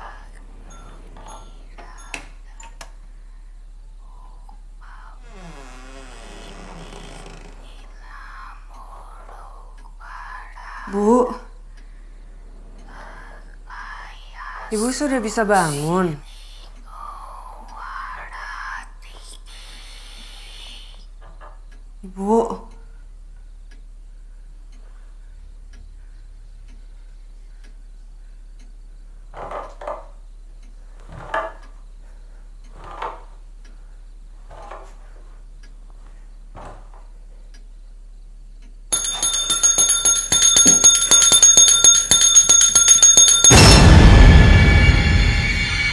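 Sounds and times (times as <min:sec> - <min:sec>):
handbell jangling: 0:38.9 - 0:43.8.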